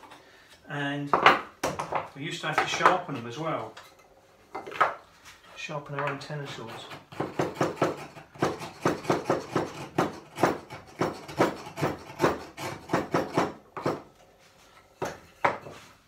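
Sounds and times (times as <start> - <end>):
hand chisel paring wood: 6.0 - 14.2, 15.0 - 15.8.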